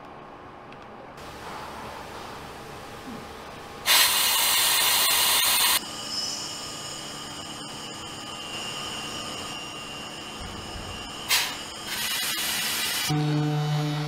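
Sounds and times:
machine hum with high whine: 0.0s - 14.0s
compressed air hissing: 3.8s - 5.8s, 11.0s - 13.1s.

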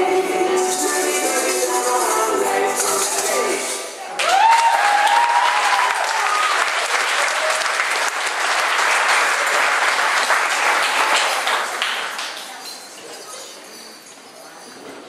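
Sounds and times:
audience clapping: 4.1s - 12.6s.

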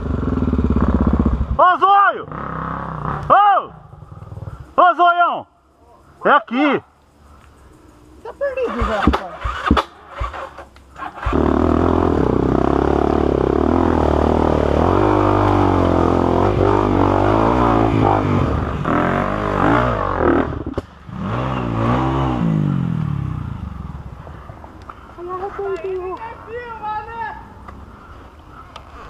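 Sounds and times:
motorcycle engine revving: 0.0s - 4.7s, 8.4s - 24.6s.

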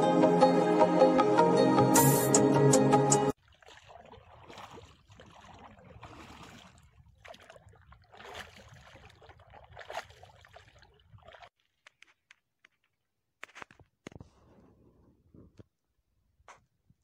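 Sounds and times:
paddle splashing in water: 3.3s - 11.6s.

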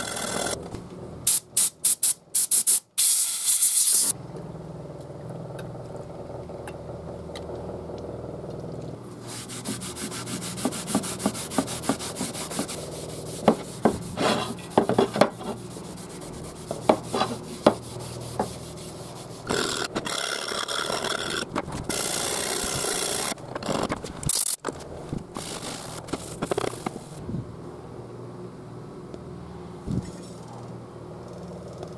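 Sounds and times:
rasping noise: 9.1s - 23.9s
band saw cutting: 9.2s - 23.4s
light scraping: 12.3s - 19.5s.

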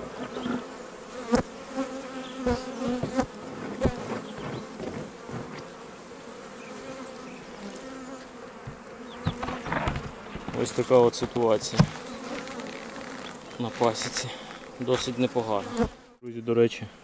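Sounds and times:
honeybees buzzing: 0.0s - 16.2s
sharp knocks: 8.6s - 12.0s.

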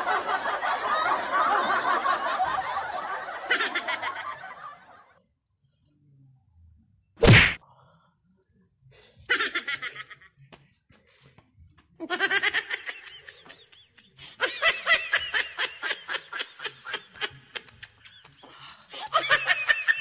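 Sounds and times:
man laughing: 12.0s - 20.0s.

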